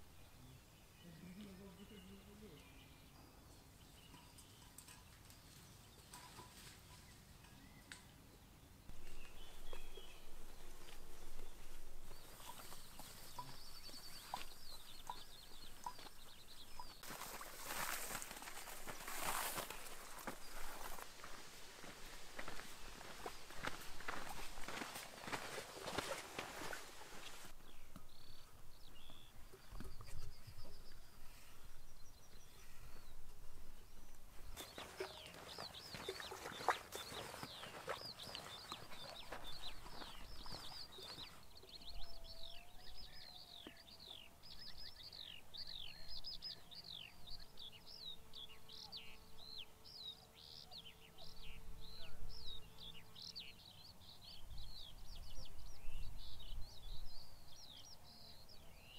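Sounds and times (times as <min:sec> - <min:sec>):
small birds chirping: 0:00.0 - 0:58.9
crackling rustle: 0:17.0 - 0:27.6.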